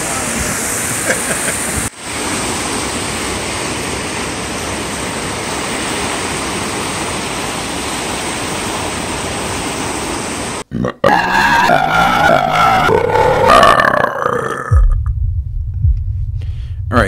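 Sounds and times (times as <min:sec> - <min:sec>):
churning whitewater rushing: 0:00.0 - 0:10.6.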